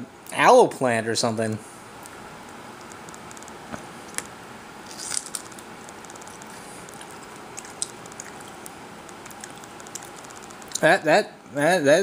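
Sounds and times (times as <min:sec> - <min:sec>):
fruit chewing clicks: 0:02.0 - 0:04.3, 0:04.9 - 0:10.9
fruit crunch: 0:02.9 - 0:10.9.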